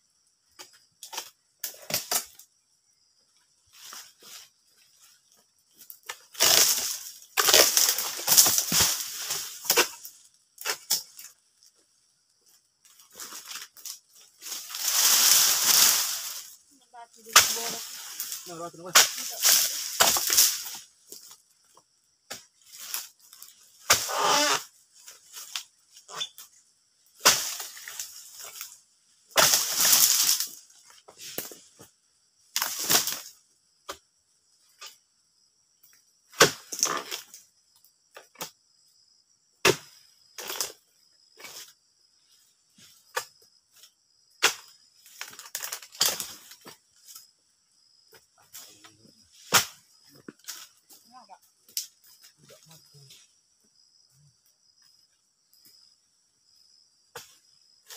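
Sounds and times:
insects buzzing: 0.0 - 57.9
rustling palm fronds: 13.0 - 21.3, 27.2 - 31.8.

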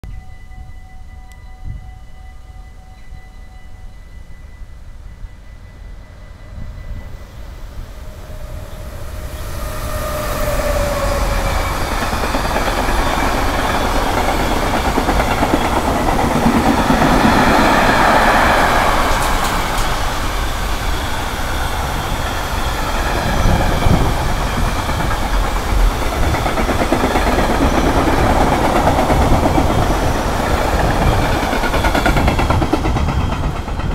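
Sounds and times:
freight train rumbling past: 0.6 - 33.9
train wheels clattering on rails: 8.8 - 33.9.

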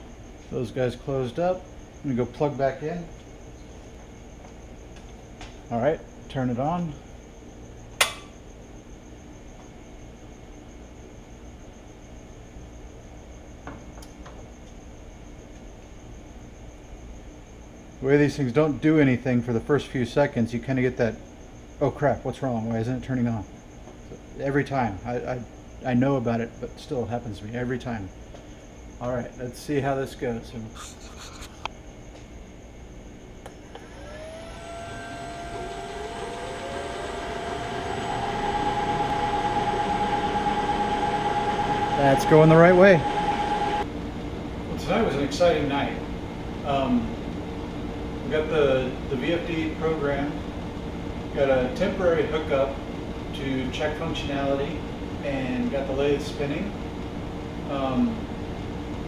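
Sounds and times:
steady low hum: 0.0 - 59.0
small click: 8.0 - 8.4
lathe motor whine rising: 33.5 - 43.9
faint pulsing high trill: 33.6 - 43.9.

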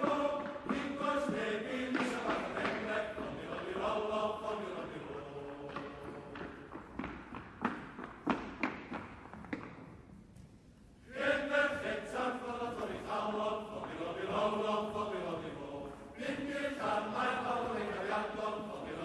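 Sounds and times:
male voice choir singing: 0.0 - 6.4, 11.1 - 19.0.

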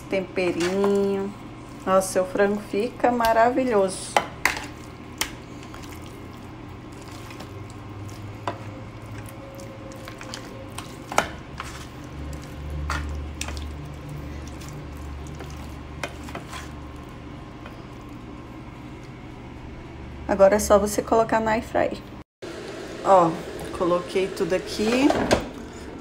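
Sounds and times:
wet squishing of raw chicken: 4.8 - 17.2.

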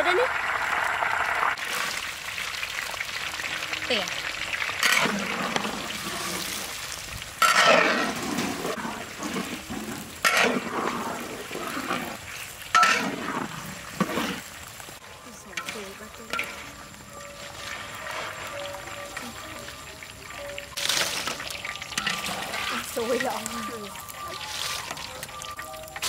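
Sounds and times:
potatoes sizzling in hot oil: 0.0 - 26.0
metal spatula scraping wok: 4.8 - 6.8, 7.4 - 14.5, 15.3 - 26.0.

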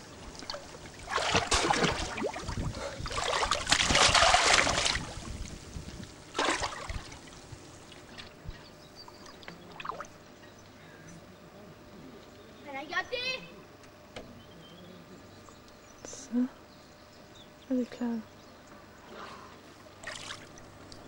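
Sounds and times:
water splashing: 0.3 - 5.6, 6.3 - 8.4, 20.0 - 21.0.

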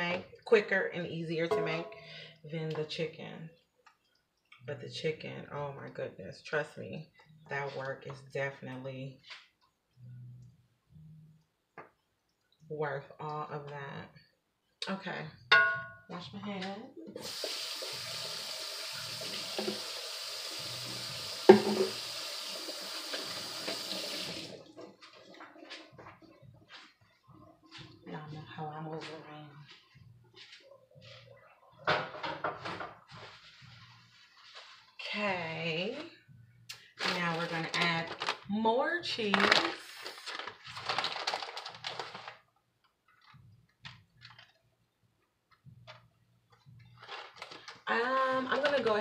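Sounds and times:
faucet running: 17.2 - 24.7
plastic bag crinkling: 37.0 - 38.5, 39.3 - 42.5, 46.9 - 47.9.

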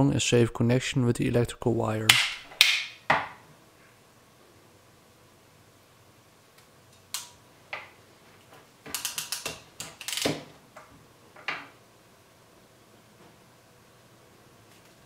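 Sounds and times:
crimp tool ratchet clicks: 8.9 - 10.4.

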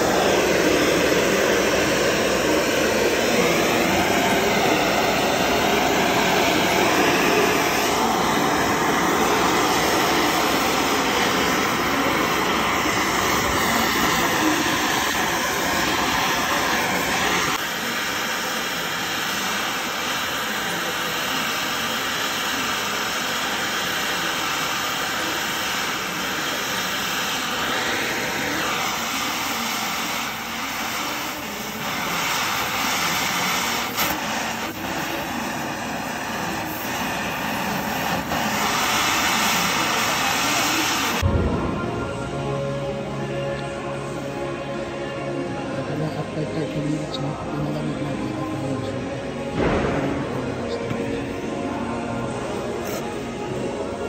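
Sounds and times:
torch flame hissing: 0.0 - 41.3.

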